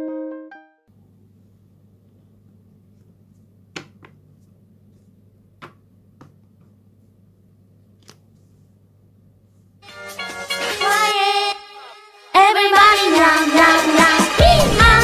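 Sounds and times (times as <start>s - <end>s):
faint steady hum: 0.9s - 9.8s
paper pages tapping and clicking: 3.3s - 6.7s, 8.0s - 8.3s.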